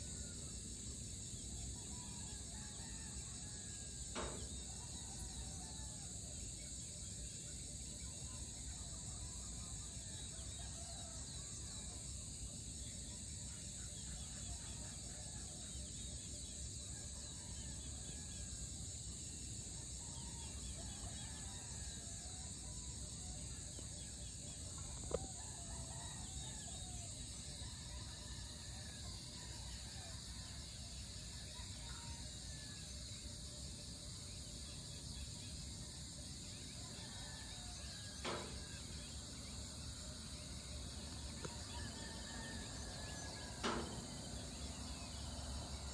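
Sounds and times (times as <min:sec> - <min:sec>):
insects chirring: 0:00.0 - 0:45.9
roosters crowing: 0:41.5 - 0:45.9
sharp click: 0:43.6 - 0:44.0.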